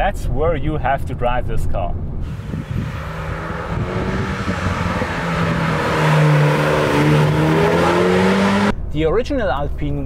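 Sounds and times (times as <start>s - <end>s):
car accelerating past: 2.2s - 8.7s.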